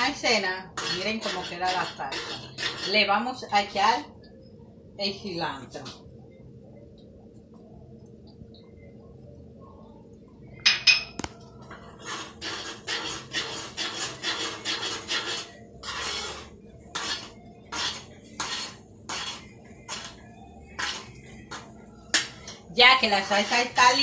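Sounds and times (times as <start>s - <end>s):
metal spoon scraping a pan: 0.0s - 3.3s, 11.7s - 22.6s.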